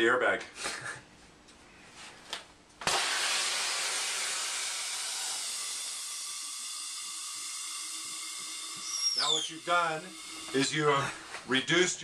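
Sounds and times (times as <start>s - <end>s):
compressed gas hissing: 3.0s - 11.5s.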